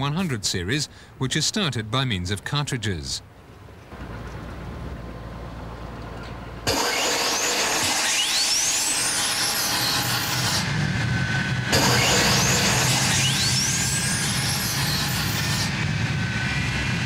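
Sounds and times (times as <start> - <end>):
rising turbine whine: 4.0 - 17.0
jet engine starting: 6.6 - 17.0.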